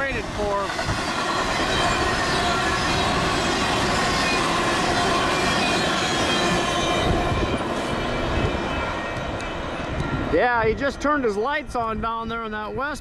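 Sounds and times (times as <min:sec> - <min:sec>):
freight train cars rolling: 0:00.0 - 0:12.9
train wheels squealing: 0:00.4 - 0:10.3.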